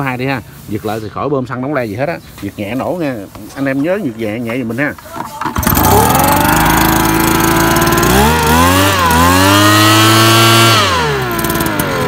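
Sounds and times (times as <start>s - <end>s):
two-stroke engine starting and revving: 5.3s - 12.0s.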